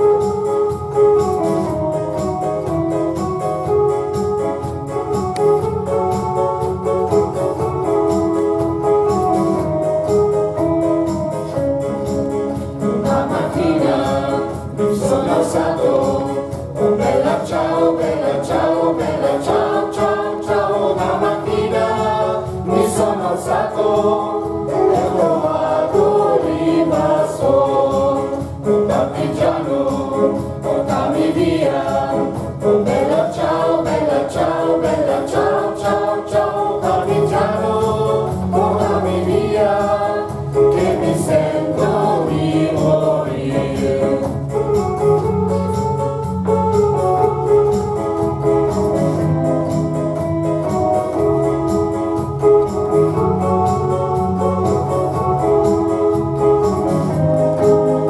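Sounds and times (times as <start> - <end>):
electronic keyboard: 0.0 - 58.0
mixed choir singing: 12.9 - 44.6.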